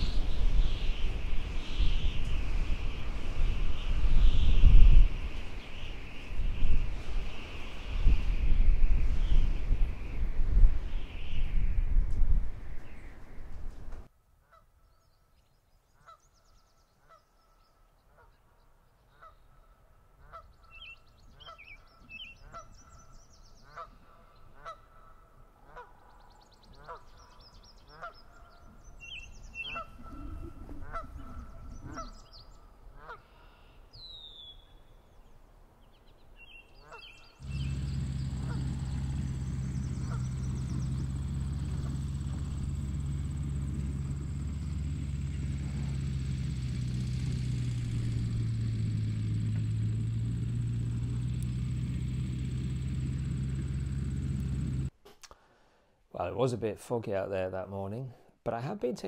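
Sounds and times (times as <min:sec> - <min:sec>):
small birds chirping: 0:00.0 - 0:13.5, 0:20.3 - 0:24.8, 0:25.8 - 0:54.9
geese honking: 0:19.2 - 0:19.4, 0:20.2 - 0:20.6, 0:23.6 - 0:26.2, 0:26.8 - 0:28.7, 0:29.6 - 0:32.3, 0:32.9 - 0:33.5, 0:36.8 - 0:47.6
steady engine hum: 0:20.0 - 0:33.6, 0:36.9 - 0:54.9.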